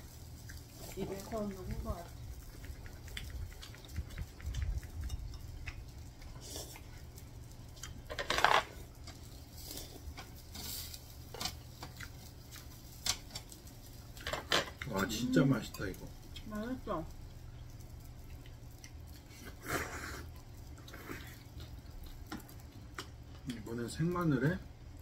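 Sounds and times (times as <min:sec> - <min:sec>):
metal tongs scraping a grill grate: 0:08.1 - 0:12.0.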